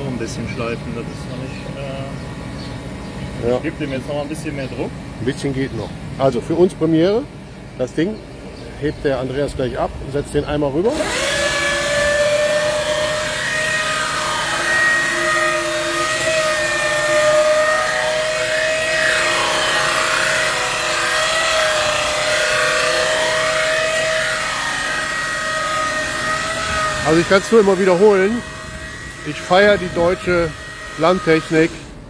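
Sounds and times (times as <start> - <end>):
motor whining: 10.6 - 32.0
grinder grinding knives: 10.9 - 32.0.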